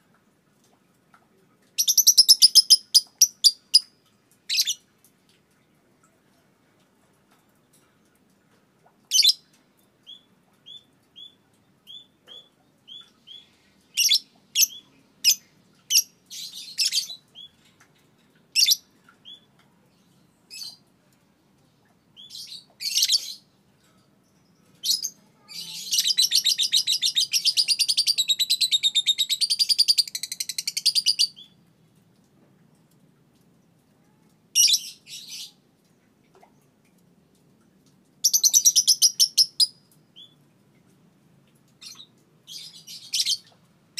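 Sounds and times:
lovebird chirping and chattering: 1.8 - 3.9, 22.2 - 23.4, 24.8 - 31.6, 38.2 - 40.4, 41.8 - 43.5.

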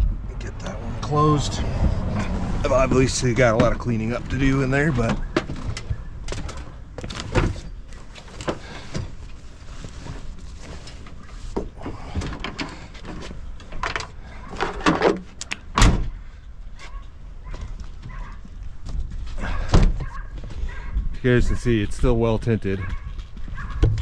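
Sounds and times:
clunks and rattles of tailgate: 3.4 - 9.3, 11.5 - 16.2, 18.9 - 20.2.

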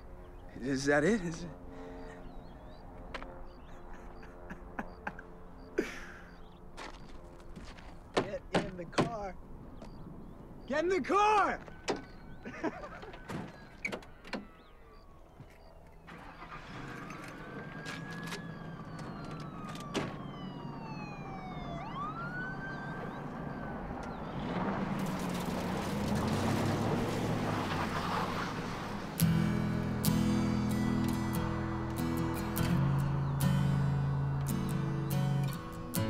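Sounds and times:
police siren wailing: 11.6 - 36.0
tyres spinning on gravel: 16.1 - 18.9, 24.4 - 29.1
car engine revving: 22.3 - 36.0.

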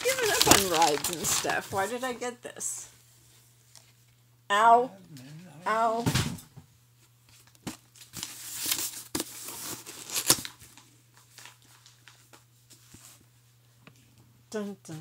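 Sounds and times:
packaging tearing and crinkling: 0.0 - 1.9, 7.4 - 12.2.

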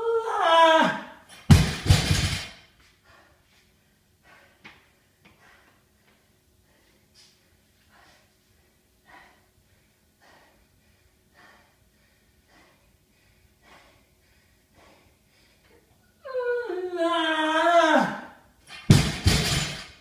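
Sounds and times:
person panting: 2.8 - 16.0.

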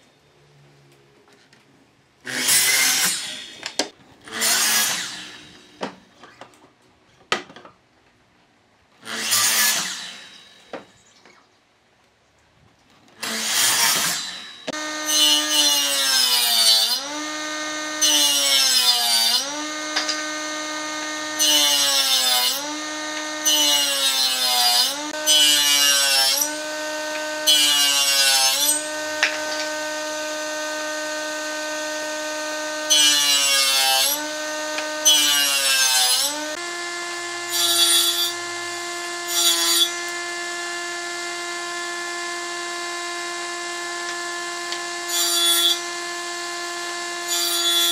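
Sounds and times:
hissing wood cutting: 2.3 - 6.0, 9.0 - 10.7, 13.2 - 47.9
power tool motor running: 14.2 - 47.9.

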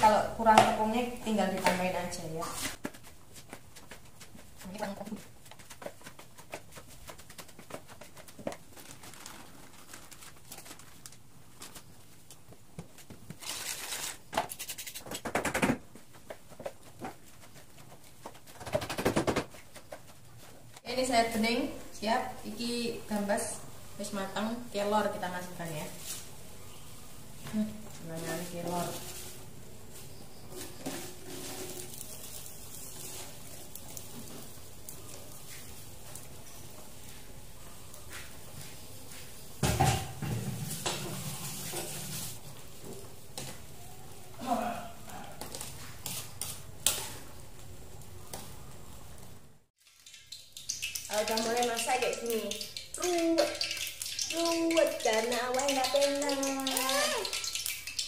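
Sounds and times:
leaves rustling: 0.8 - 15.0, 24.1 - 39.6, 40.5 - 44.5
rustling and clattering: 2.6 - 20.8.

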